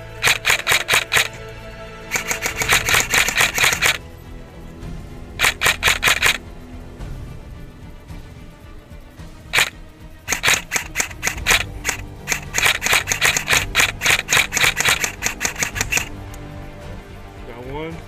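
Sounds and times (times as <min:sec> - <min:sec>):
airsoft rifle shots: 0:00.2 - 0:01.4, 0:02.1 - 0:04.0, 0:05.4 - 0:06.4, 0:09.6 - 0:16.1.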